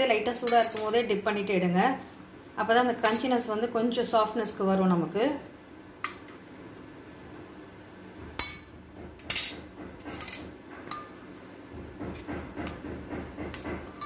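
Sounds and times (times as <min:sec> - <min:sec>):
spoon clinking against steel bowl: 0:00.4 - 0:01.0.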